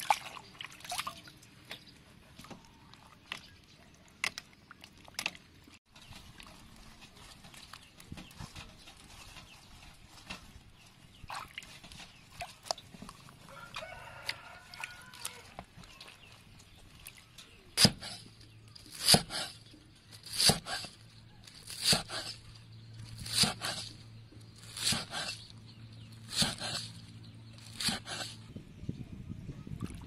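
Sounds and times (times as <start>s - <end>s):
water sloshing in metal basin: 0.0s - 20.4s
cleaver chopping on wooden board: 21.8s - 22.3s, 23.3s - 23.8s, 26.3s - 26.8s.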